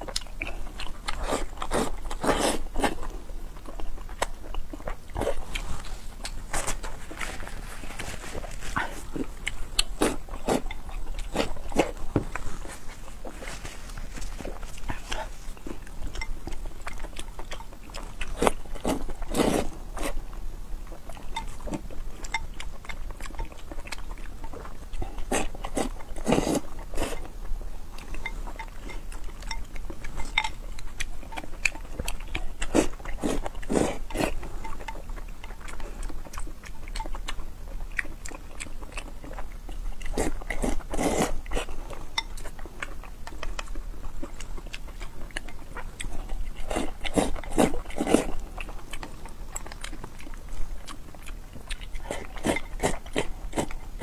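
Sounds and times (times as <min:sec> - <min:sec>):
person chewing: 0:00.0 - 0:54.0
person slurping noodles: 0:01.2 - 0:03.0, 0:18.8 - 0:20.2, 0:40.2 - 0:41.7.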